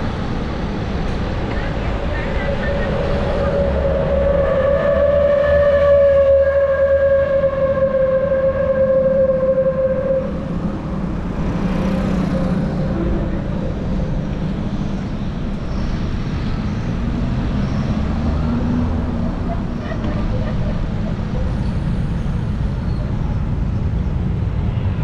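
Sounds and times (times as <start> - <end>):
traffic on wet road: 0.0 - 25.0
droning tone falling in pitch: 2.2 - 15.3.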